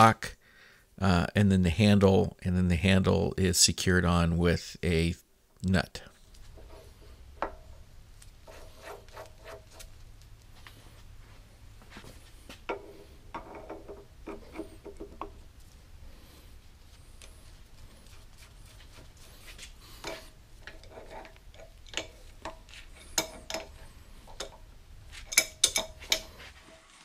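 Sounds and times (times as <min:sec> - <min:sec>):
metal clinks and taps: 0:20.0 - 0:26.3.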